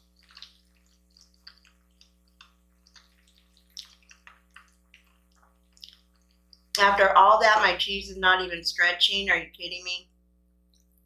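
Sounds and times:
wet chewing mouth sounds: 0:00.0 - 0:06.8
steady low hum: 0:00.0 - 0:11.0.

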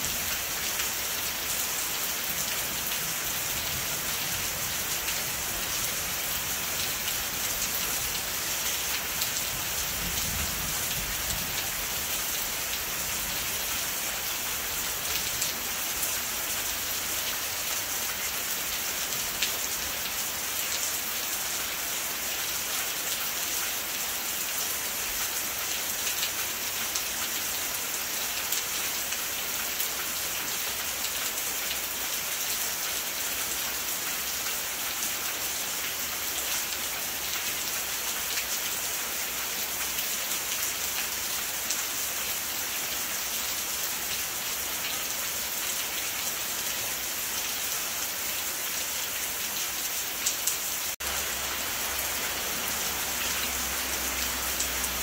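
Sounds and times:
steady rain hiss: 0:00.0 - 0:55.0
raindrops ticking on surfaces: 0:48.7 - 0:55.0.

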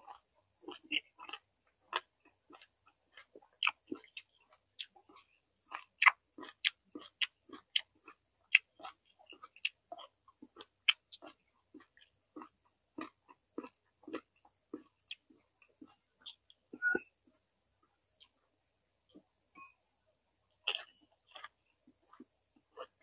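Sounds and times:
chewing crunches: 0:00.0 - 0:16.9, 0:20.6 - 0:23.0
mouth clicks: 0:15.9 - 0:17.1.

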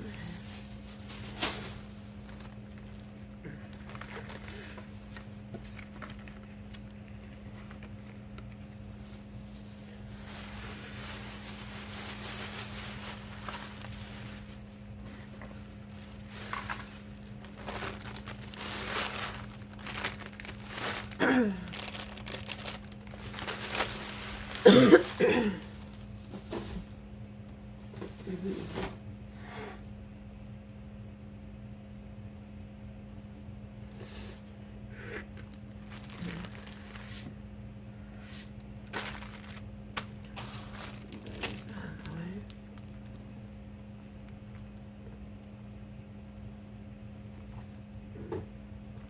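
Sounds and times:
plastic bag crinkling: 0:00.0 - 0:27.0, 0:35.4 - 0:37.3, 0:38.5 - 0:45.0
items shuffled on a desk: 0:00.1 - 0:27.0, 0:35.8 - 0:37.4, 0:38.2 - 0:41.8.

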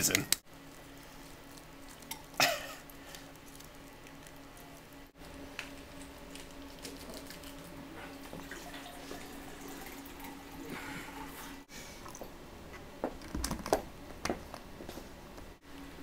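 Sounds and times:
faint hum: 0:00.0 - 0:16.0
juice pouring into a glass: 0:06.4 - 0:11.6.

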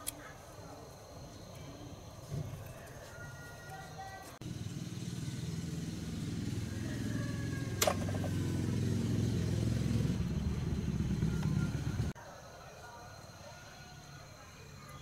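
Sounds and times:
engine humming: 0:04.3 - 0:12.2.

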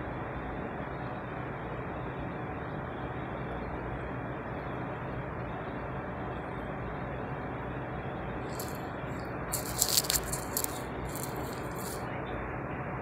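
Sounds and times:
low background hum: 0:00.0 - 0:13.0
hand rubbing dog fur: 0:09.5 - 0:12.0.

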